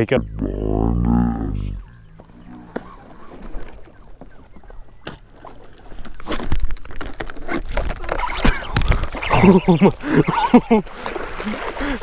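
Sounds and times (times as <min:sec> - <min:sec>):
water lapping against boat hull: 0:07.6 - 0:12.0.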